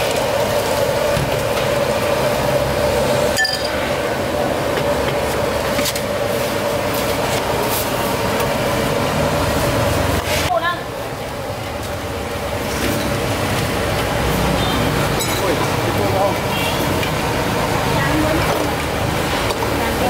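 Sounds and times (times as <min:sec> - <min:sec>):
ceramic bowls and utensils clinking: 0:03.3 - 0:03.8, 0:15.2 - 0:15.6.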